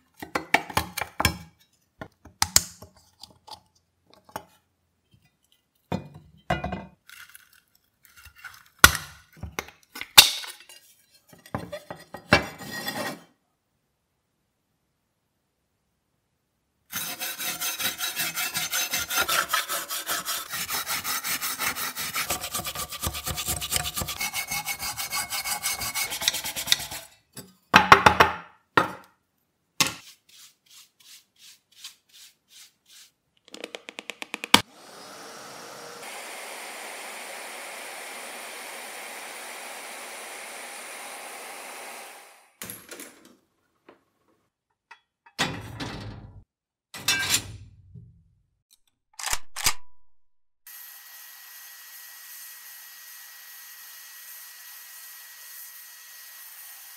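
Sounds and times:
scraper rasping rust off metal: 16.9s - 27.2s
brush sweeping dust: 30.0s - 33.2s.

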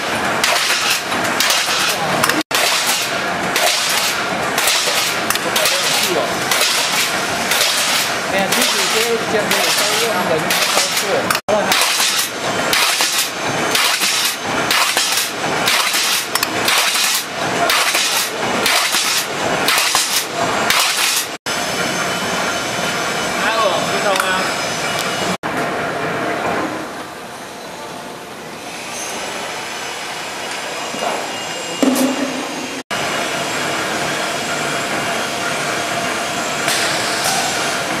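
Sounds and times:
press machine clattering strokes: 0.0s - 21.9s.

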